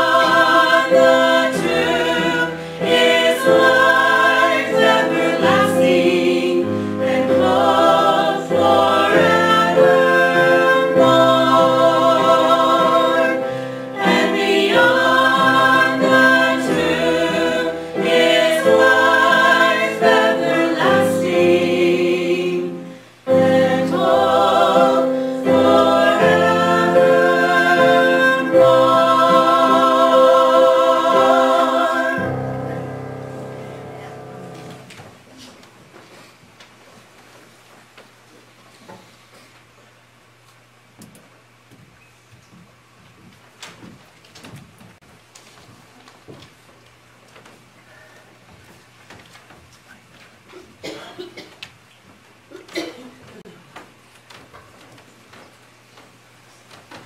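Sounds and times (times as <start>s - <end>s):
vocal quartet singing in harmony: 0.0s - 34.9s.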